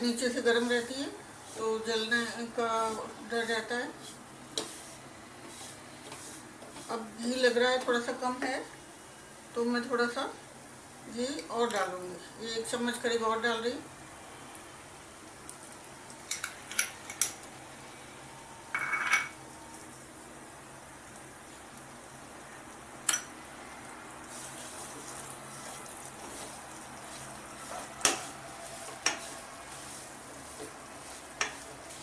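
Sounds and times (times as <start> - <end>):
flour sizzling in ghee: 0.0 - 32.0
wooden spatula scraping metal pan: 1.5 - 7.1, 24.3 - 32.0.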